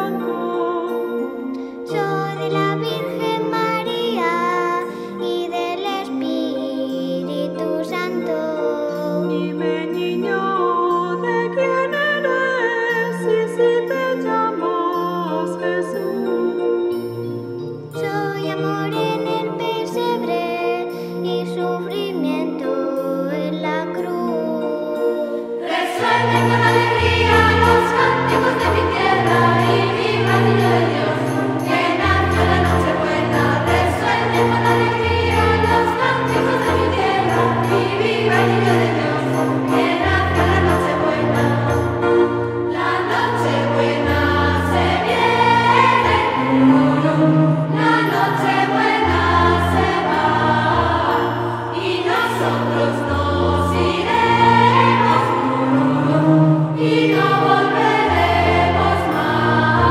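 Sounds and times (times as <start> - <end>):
choir singing: 25.4 - 59.9.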